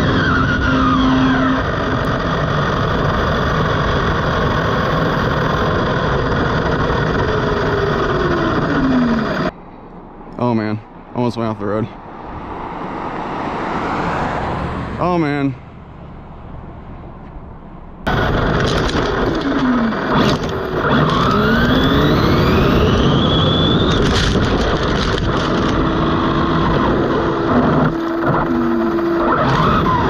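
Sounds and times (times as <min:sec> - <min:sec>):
electric motor whining: 0:00.0 - 0:09.5, 0:18.1 - 0:30.0
loud wind and tyre rush: 0:00.0 - 0:09.6, 0:11.9 - 0:30.0
road noise: 0:00.0 - 0:30.0.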